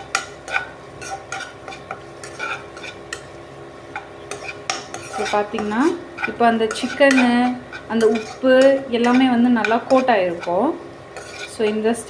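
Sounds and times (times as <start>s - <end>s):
hot oil sizzling: 0.0s - 12.0s
spatula scraping a pan: 0.0s - 12.0s.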